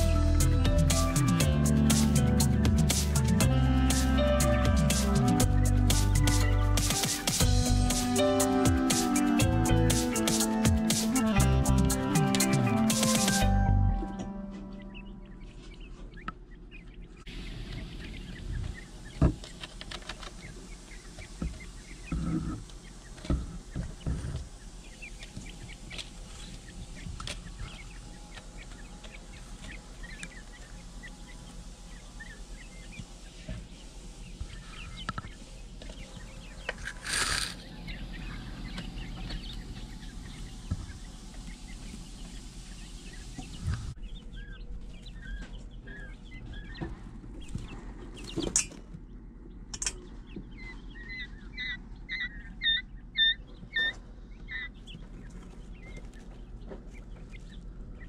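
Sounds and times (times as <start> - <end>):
quail chicks peeping and chirping: 0.0 - 58.0
low steady hum: 12.6 - 58.0
loud rustle: 36.8 - 37.6.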